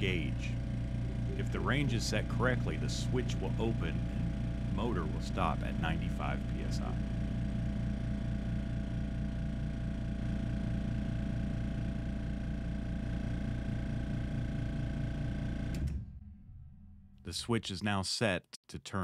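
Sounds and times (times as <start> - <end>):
air compressor running: 0.0 - 16.0.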